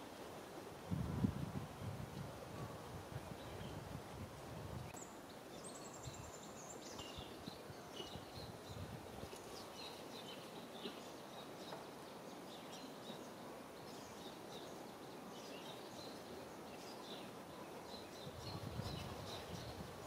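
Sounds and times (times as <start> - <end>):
low background hiss: 0.0 - 20.0
small birds chirping: 4.9 - 20.0.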